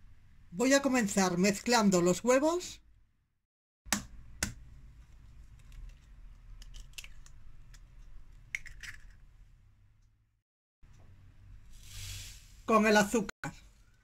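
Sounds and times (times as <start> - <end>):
eggshells crackling: 5.5 - 9.2.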